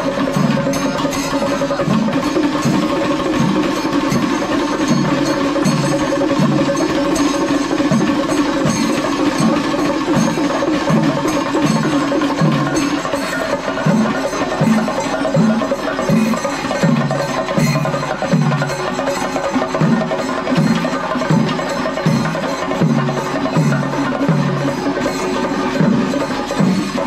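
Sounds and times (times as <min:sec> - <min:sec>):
metal cymbals clashing: 0:00.0 - 0:27.0
stick-beaten drums: 0:00.0 - 0:27.0.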